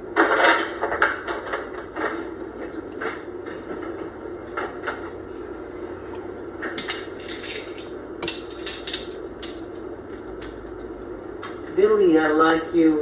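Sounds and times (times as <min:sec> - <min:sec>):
steady low hum: 0:00.0 - 0:13.0
metal utensils clinking on pots: 0:06.8 - 0:09.7.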